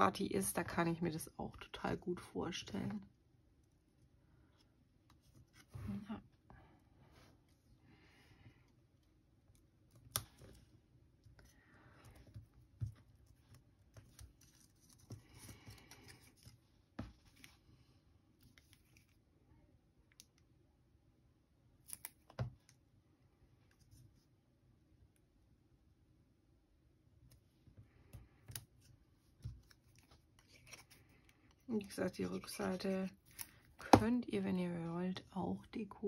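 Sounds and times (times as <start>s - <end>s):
paper and cord rustling: 12.1s - 17.7s, 29.3s - 33.8s.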